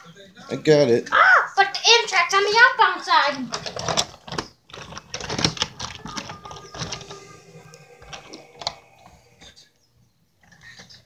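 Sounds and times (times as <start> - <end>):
wooden toy train clicking and knocking: 3.5 - 7.2.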